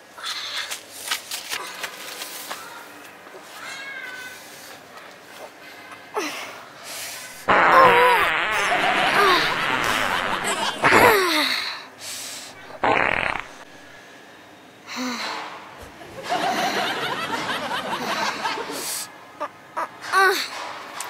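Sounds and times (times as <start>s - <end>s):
comic laughing vocal sounds: 7.5s - 11.2s.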